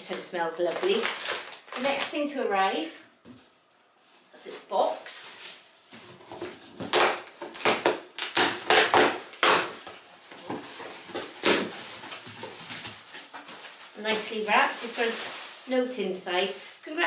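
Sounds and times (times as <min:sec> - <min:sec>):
cardboard flaps tearing and scraping: 0:06.0 - 0:15.4.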